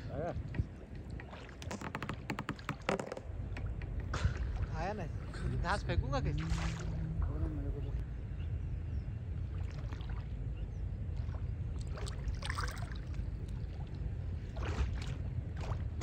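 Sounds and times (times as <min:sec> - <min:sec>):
low steady rumble: 0:00.0 - 0:16.0
water splashing and sloshing: 0:00.4 - 0:08.1, 0:09.3 - 0:16.0.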